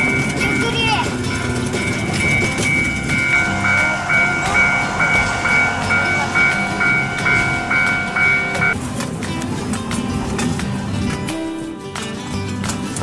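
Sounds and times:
electronic crossing bell ding: 0.0s - 8.8s.

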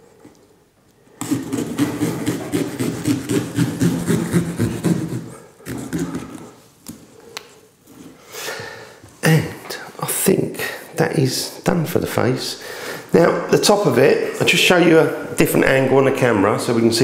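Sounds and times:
knife sawing through pumpkin: 1.2s - 6.6s.

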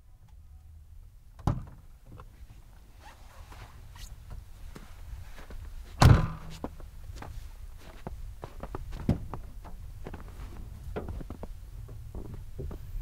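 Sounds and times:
clothing rustle: 2.3s - 11.5s
footsteps crunching on snow: 4.7s - 11.5s.

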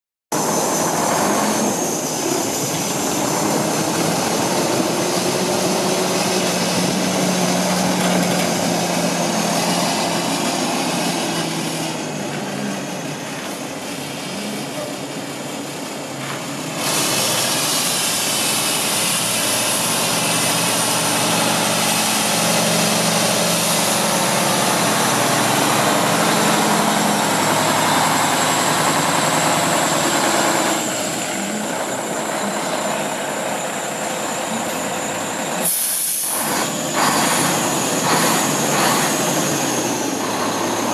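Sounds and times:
truck diesel engine running: 0.4s - 40.9s.

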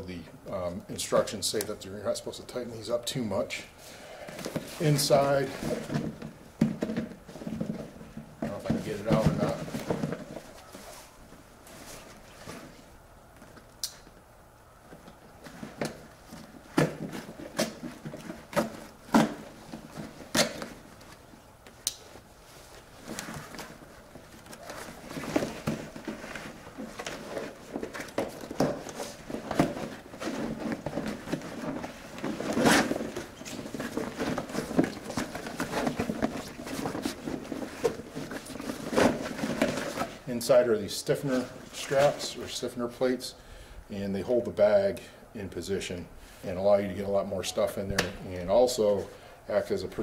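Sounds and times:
heavy fabric rustling and crinkling: 4.3s - 13.7s, 15.2s - 42.6s.

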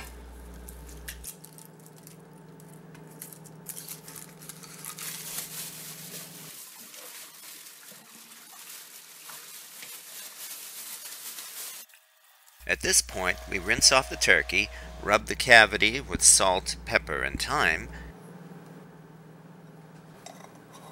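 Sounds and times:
dry onion skin rustling: 0.0s - 11.9s
plastic bag crinkling: 0.0s - 11.9s
steady low hum: 12.6s - 20.9s.

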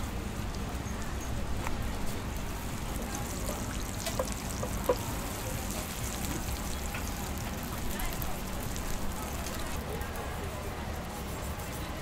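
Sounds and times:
small crackles: 1.6s - 10.0s
dough sizzling in oil: 2.1s - 10.1s.

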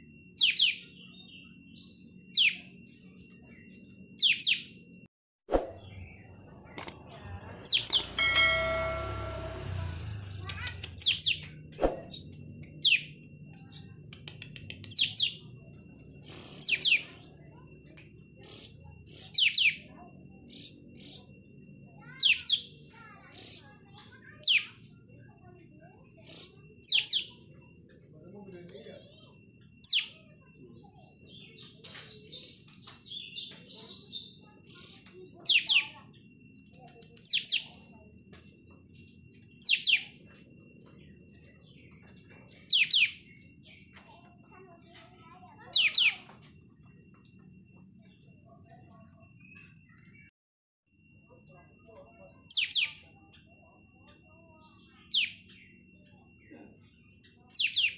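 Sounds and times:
bird chattering: 7.6s - 8.6s, 22.0s - 24.8s, 26.2s - 27.4s, 34.4s - 36.0s
bird calling high sweeping notes: 7.6s - 10.3s.

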